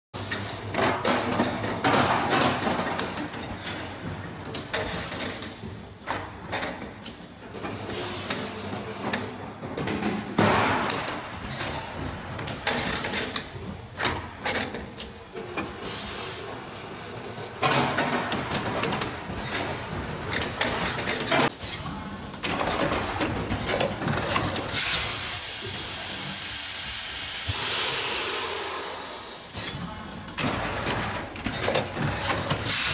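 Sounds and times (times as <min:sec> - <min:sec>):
machine clattering and knocking: 0:00.2 - 0:25.7, 0:30.3 - 0:32.9
compressed air hiss: 0:24.8 - 0:29.6.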